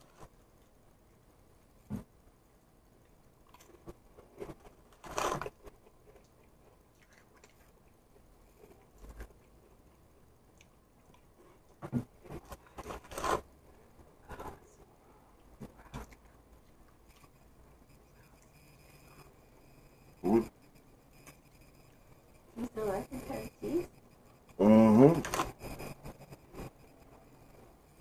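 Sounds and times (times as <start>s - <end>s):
person crunching crackers: 3.4s - 8.0s, 8.8s - 13.5s.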